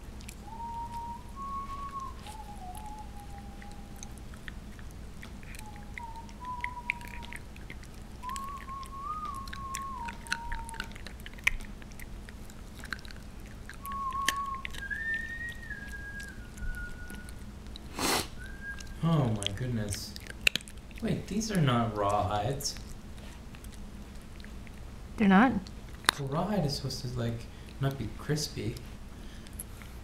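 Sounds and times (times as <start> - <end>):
puppy crunching a treat: 0.0 - 24.9, 25.6 - 30.0
whistle-like tones: 0.4 - 4.2, 5.5 - 7.4, 8.2 - 10.9, 13.8 - 17.4, 18.4 - 19.2.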